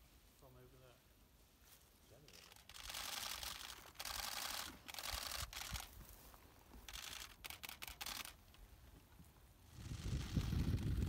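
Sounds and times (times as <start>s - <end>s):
camera shutters firing: 6.9s - 8.4s.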